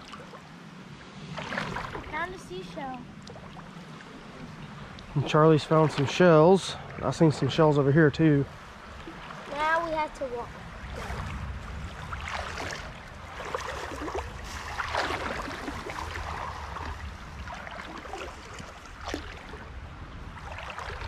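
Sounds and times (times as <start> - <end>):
low steady rumble: 0.0 - 21.0
water splashing around legs: 9.0 - 19.7, 20.4 - 21.0.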